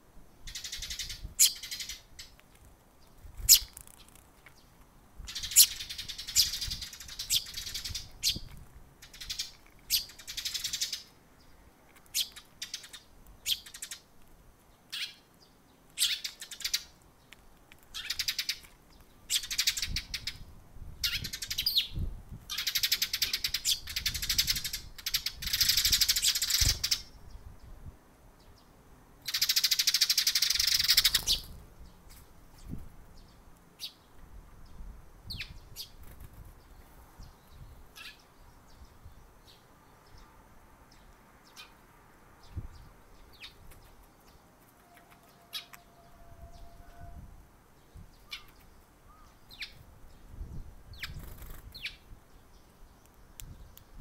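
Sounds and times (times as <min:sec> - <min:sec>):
sparrows chirping: 0:00.4 - 0:02.4, 0:03.0 - 0:14.1, 0:14.7 - 0:27.8, 0:28.4 - 0:53.9.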